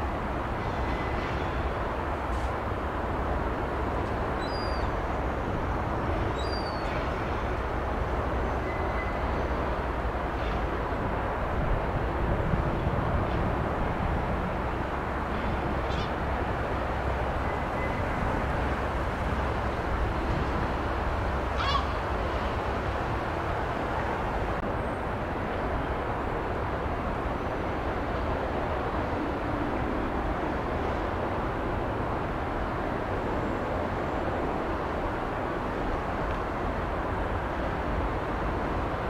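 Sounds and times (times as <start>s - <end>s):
bird calls: 4.4s - 4.9s, 6.4s - 7.1s.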